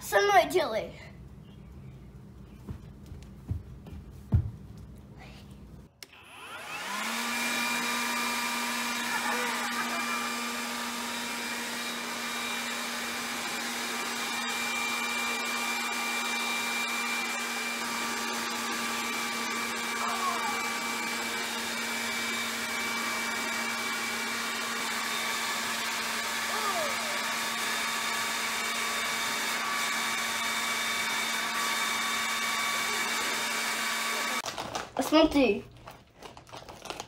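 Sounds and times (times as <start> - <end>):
electric blower motor whine: 6.0 - 34.4.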